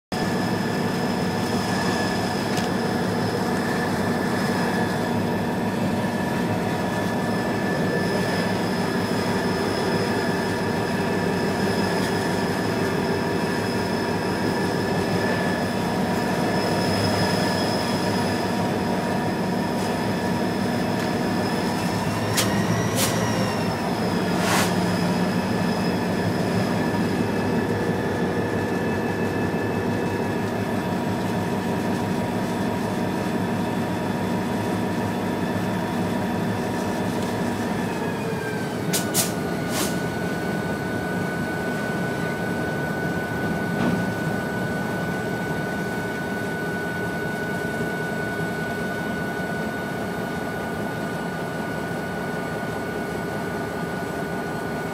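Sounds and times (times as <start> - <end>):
freight train rumbling: 0.1 - 50.0
high-pitched wheel squeal: 7.4 - 19.0, 21.2 - 27.5.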